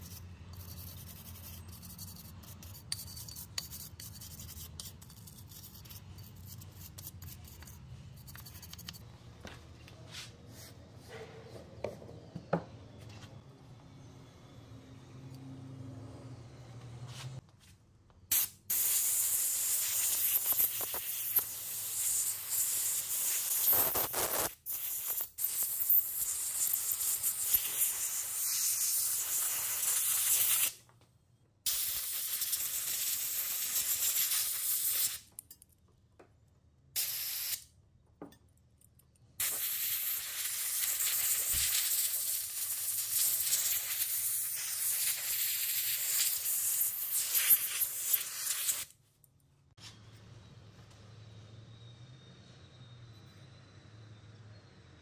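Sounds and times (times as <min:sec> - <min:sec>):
aerosol spray can hissing: 0:18.3 - 0:30.7, 0:31.7 - 0:35.2, 0:37.0 - 0:37.6, 0:39.4 - 0:48.9.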